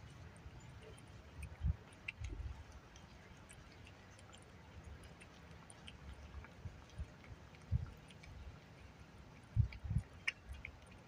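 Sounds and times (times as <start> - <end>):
cat chewing wet food: 0.0 - 11.0
dull low thumps: 9.5 - 10.2.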